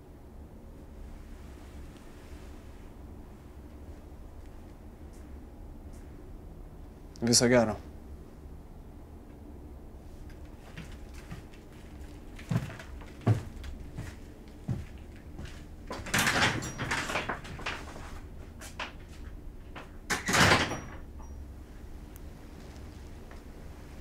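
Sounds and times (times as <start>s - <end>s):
door scraping rattles: 15.9s - 18.2s.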